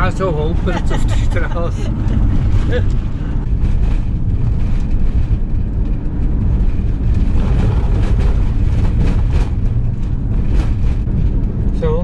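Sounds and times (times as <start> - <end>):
engine and tyre rumble: 0.0 - 12.0
vehicle knocks over bumps: 6.6 - 11.4.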